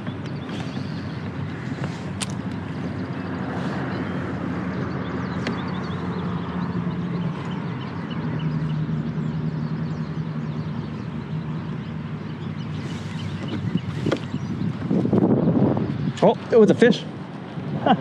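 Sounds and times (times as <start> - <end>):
low engine hum: 0.0 - 18.0
faint bird chirps: 2.7 - 14.9.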